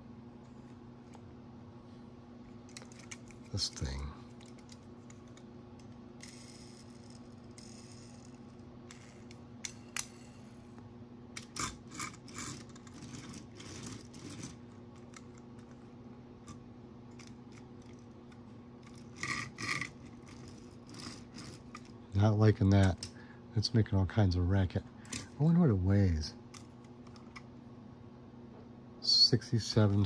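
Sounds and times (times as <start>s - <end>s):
toy car clicking and rattling: 6.2s - 10.2s, 11.4s - 15.3s, 18.8s - 21.9s.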